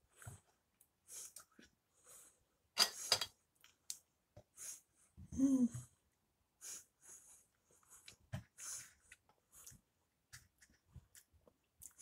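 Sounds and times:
person humming mm: 0:05.3 - 0:05.9
person chewing: 0:08.8 - 0:12.0.

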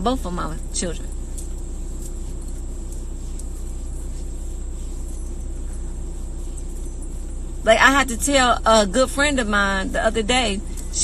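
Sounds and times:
car cabin rumble: 0:00.0 - 0:11.0
faint steady hum: 0:00.0 - 0:11.0.

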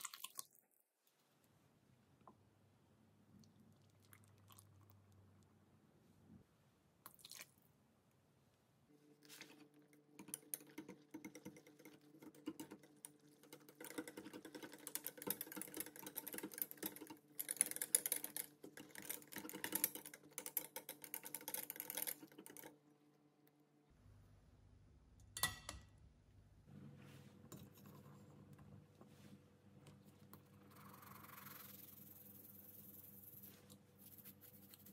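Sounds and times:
whisk beating in glass bowl: 0:10.2 - 0:22.7.

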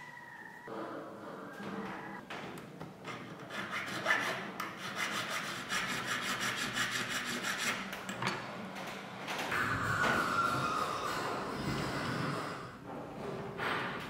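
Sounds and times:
file scraping metal: 0:03.4 - 0:07.9.

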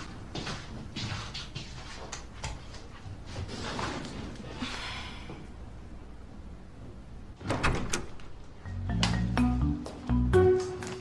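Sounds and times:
door and latch clattering: 0:07.4 - 0:08.2.

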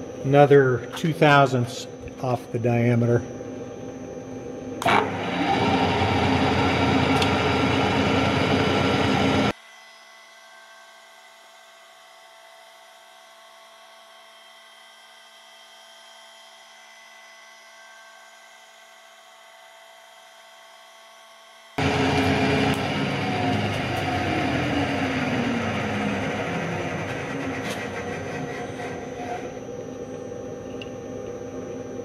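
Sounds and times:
machine hum with high tones: 0:00.0 - 0:32.0
loud milling machine cutting: 0:04.8 - 0:09.5, 0:21.8 - 0:29.8.

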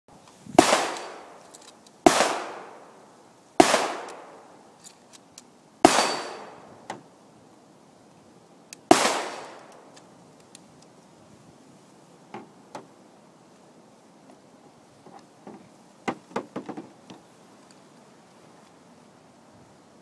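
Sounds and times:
gunshots with long echo: 0:00.6 - 0:01.4, 0:02.0 - 0:03.0, 0:03.6 - 0:04.6, 0:05.8 - 0:06.8, 0:08.9 - 0:09.8
faint clicks: 0:09.6 - 0:11.0.

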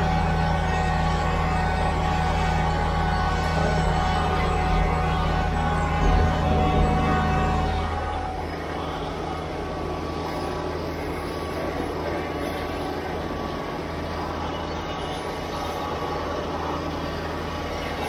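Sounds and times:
diesel tractor engine running: 0:00.0 - 0:18.0.

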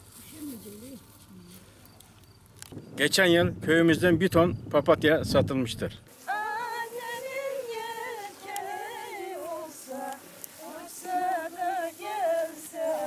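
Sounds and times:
woman singing unaccompanied: 0:06.2 - 0:13.0.

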